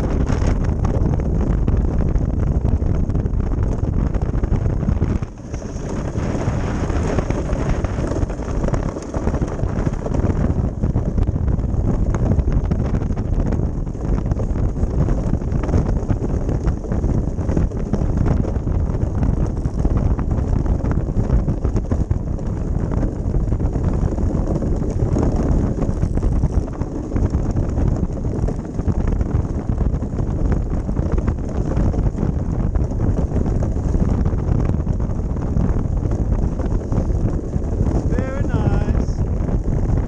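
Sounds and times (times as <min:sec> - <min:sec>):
runners rumbling over ice: 0:00.0 - 0:40.0
wind buffeting microphone: 0:00.0 - 0:40.0.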